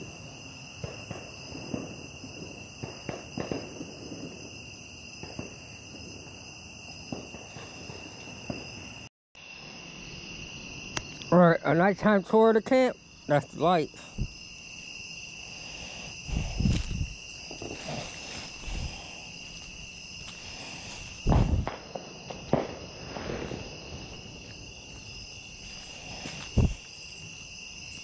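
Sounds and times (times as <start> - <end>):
crickets chirring: 0.0 - 28.0
dull low thumps: 21.2 - 21.8.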